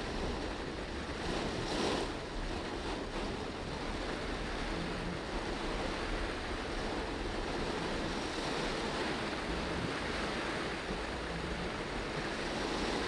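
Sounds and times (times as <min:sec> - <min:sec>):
heavy rain on a car: 0:02.3 - 0:08.0.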